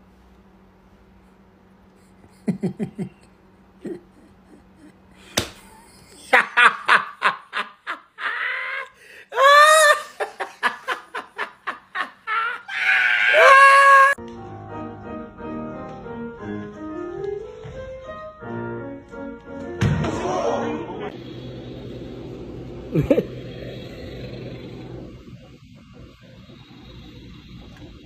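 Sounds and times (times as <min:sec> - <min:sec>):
stifled giggling: 0:02.3 - 0:05.0, 0:05.7 - 0:09.0, 0:09.6 - 0:12.7
sharp smack: 0:05.3 - 0:05.7
loud rapid laughter: 0:06.1 - 0:14.2.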